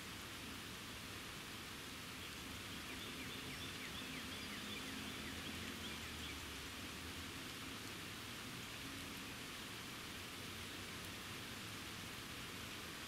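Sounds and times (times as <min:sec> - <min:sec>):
steady rainfall: 0:00.0 - 0:13.0
bird chirping: 0:02.7 - 0:06.4.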